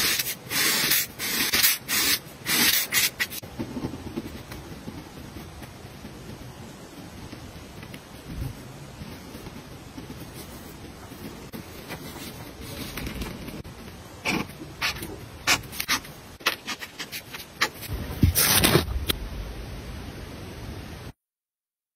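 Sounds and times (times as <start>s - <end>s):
marker scratching on paper: 0.0s - 6.4s, 14.2s - 17.8s
steady hiss: 0.0s - 21.2s.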